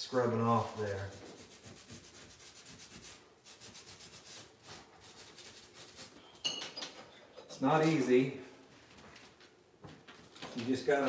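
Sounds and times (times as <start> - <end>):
scouring pad scrubbing tile: 0.2 - 6.2.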